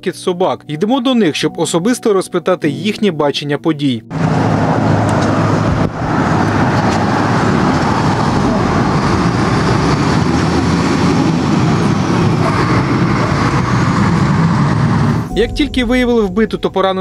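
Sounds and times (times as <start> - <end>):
road traffic noise: 4.0 - 15.4.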